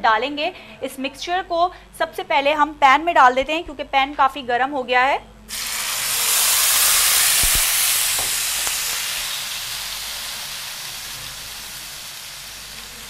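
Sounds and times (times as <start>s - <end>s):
herb paste sizzling in a pan: 5.5s - 13.0s.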